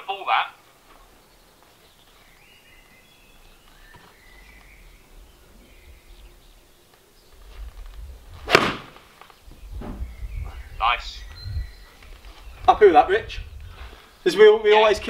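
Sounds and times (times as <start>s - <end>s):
birds chirping: 0.0s - 15.0s
golf club striking ball: 8.4s - 9.0s.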